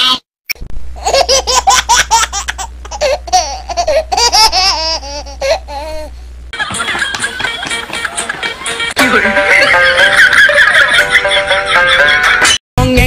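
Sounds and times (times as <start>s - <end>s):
person laughing high-pitched: 6.6s - 12.5s.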